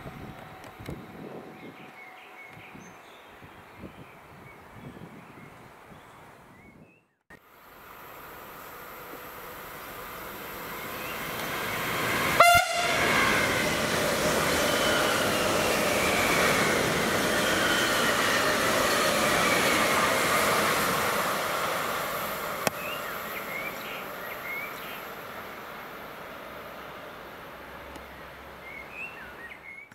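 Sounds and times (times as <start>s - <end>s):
electric train passing: 7.5s - 29.4s
train horn toot: 12.3s - 13.5s.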